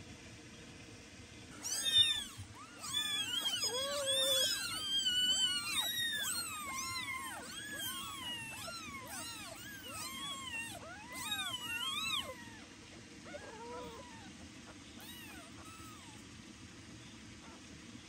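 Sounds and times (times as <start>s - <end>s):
kittens meowing: 1.6s - 14.4s, 15.0s - 16.2s.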